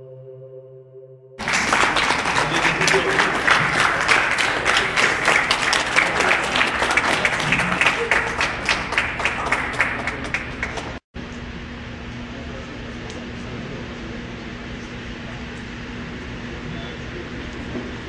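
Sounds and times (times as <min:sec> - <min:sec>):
audience applauding: 0:01.4 - 0:11.0
steady room hum: 0:01.4 - 0:18.0.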